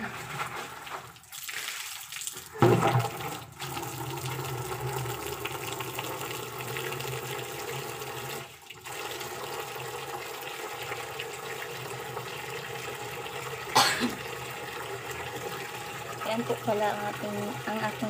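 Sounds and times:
water pouring into plastic drum: 0:00.0 - 0:18.0.

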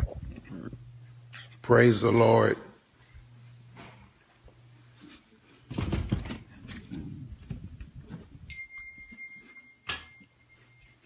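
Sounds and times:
thin steady high tone: 0:08.5 - 0:11.0.

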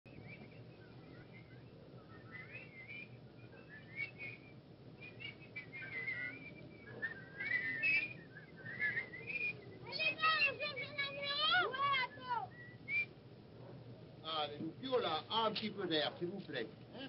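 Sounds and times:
person whistling a tune: 0:00.1 - 0:10.6
film soundtrack hiss: 0:00.1 - 0:17.0.

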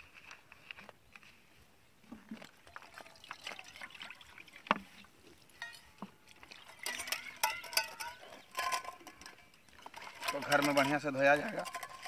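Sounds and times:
water sloshing: 0:02.1 - 0:12.0
steel bowls clinking: 0:05.5 - 0:12.0
steel containers clattering: 0:05.5 - 0:12.0.

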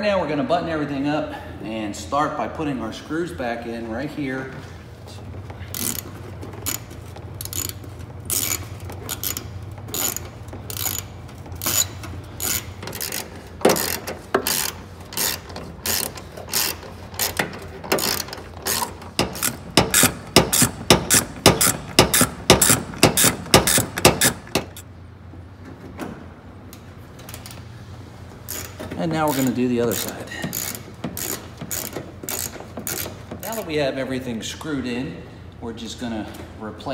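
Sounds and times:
hand ratchet clicking: 0:05.7 - 0:24.8, 0:28.5 - 0:33.6.

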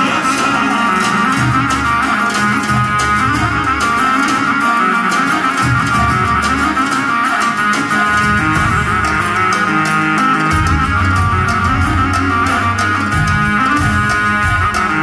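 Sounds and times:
electronic keyboard melody: 0:00.0 - 0:15.0.

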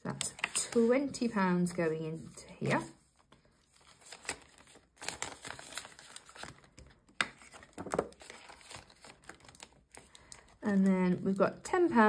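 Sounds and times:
plastic crinkling and rustling: 0:02.6 - 0:12.0.

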